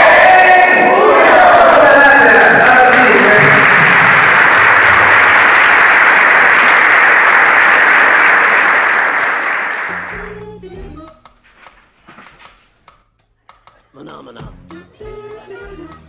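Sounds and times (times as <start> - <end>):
crowd cheering: 0.0 - 10.3
audience applauding: 1.4 - 10.4.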